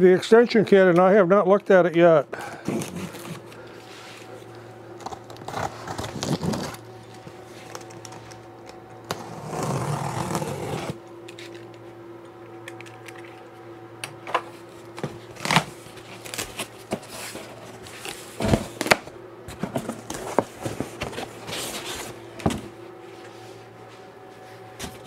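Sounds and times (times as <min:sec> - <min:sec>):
steady low hum: 0:00.0 - 0:25.0
cardboard flaps scraping and rustling: 0:02.7 - 0:04.3, 0:05.0 - 0:08.2, 0:09.1 - 0:11.0, 0:14.9 - 0:22.7.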